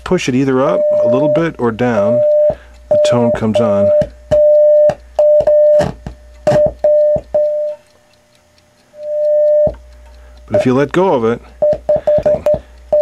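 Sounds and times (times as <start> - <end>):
mid-pitched test tone: 0.0 - 7.8, 9.0 - 9.8
crackly clicks: 0.0 - 13.0.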